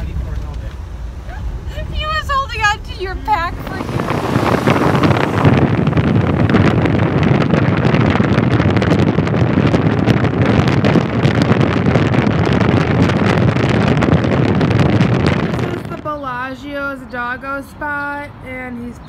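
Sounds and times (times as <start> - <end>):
constant crackling: 0.0 - 19.0
wind buffeting microphone: 0.0 - 19.0.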